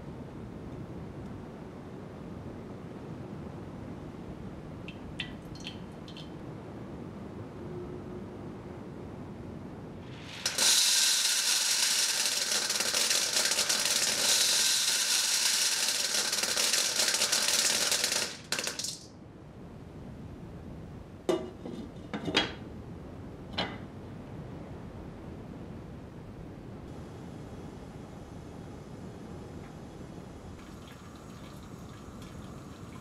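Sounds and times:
popcorn kernels rattling into pot: 10.1s - 19.0s.

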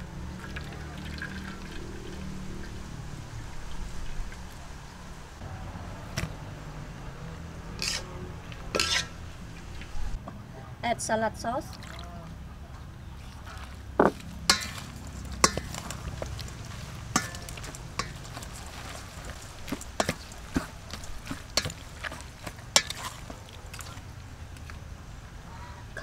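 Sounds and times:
wet squelching and scraping: 7.8s - 10.2s, 11.7s - 12.3s, 13.0s - 24.9s
spatula knocking metal bowl: 14.0s - 14.8s, 15.4s - 16.3s, 17.1s - 18.5s.

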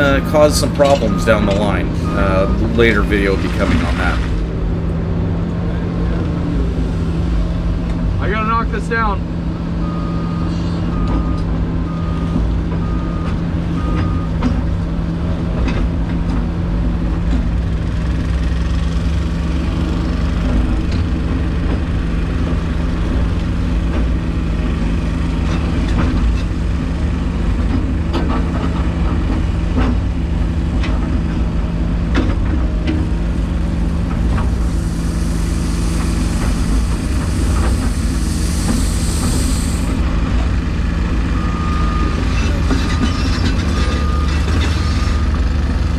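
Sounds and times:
backup alarm beeping: 0.0s - 4.3s
excavator diesel engine running: 0.0s - 45.9s
high hiss: 34.5s - 40.0s.

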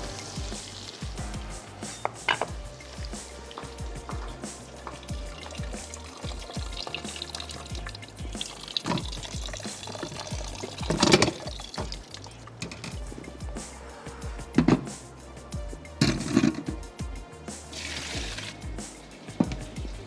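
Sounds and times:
water pouring and splashing: 0.0s - 13.5s, 17.7s - 20.0s
music with a steady beat: 0.0s - 20.0s.

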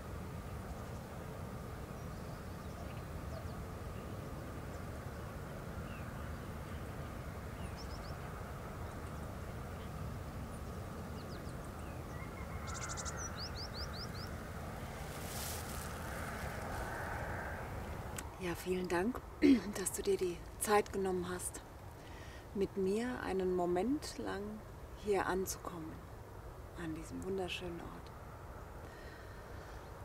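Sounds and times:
low outdoor background rumble: 0.0s - 30.0s
small birds chirping: 1.9s - 14.4s.

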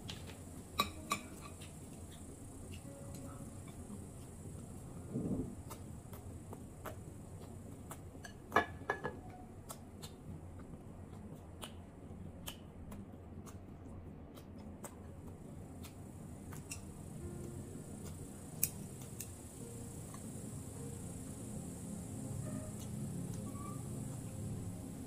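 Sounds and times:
chopsticks clicking against dishes: 0.8s - 1.7s, 18.0s - 19.4s.

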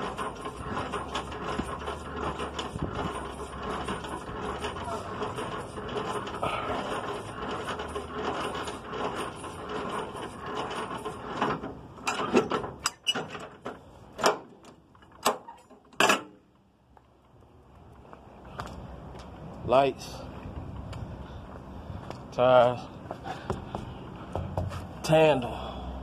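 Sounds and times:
hand crank gear clatter: 0.0s - 13.5s.

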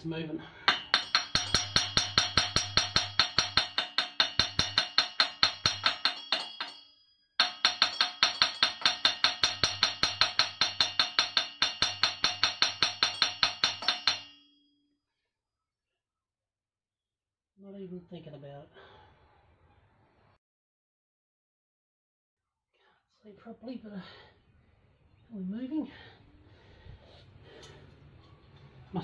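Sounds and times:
hammer tapping on metal: 0.7s - 14.5s.

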